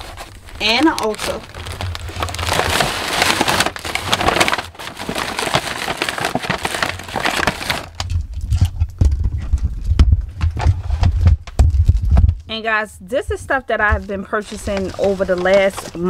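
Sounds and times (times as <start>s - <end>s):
shopping bags rustling: 0.0s - 8.0s, 13.2s - 16.0s
low dull thumps: 8.1s - 14.2s.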